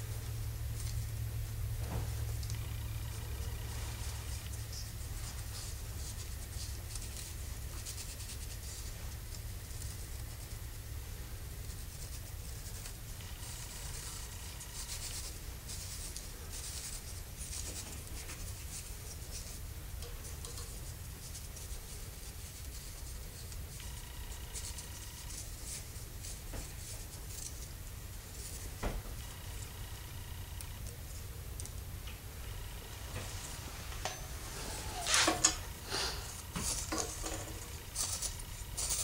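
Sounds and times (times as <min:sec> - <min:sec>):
faint low hum: 0:00.0 - 0:39.0
short squeaks: 0:34.0 - 0:35.7.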